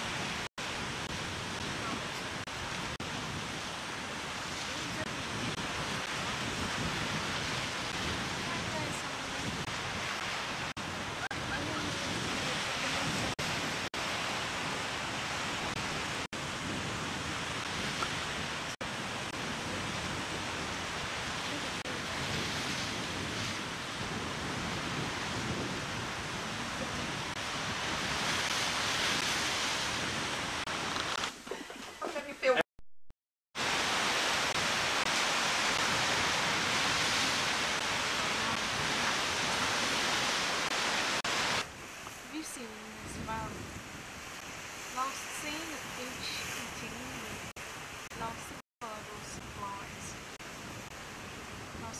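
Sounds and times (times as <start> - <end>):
surf breaking on rocks: 0.0 - 31.4, 33.6 - 42.3.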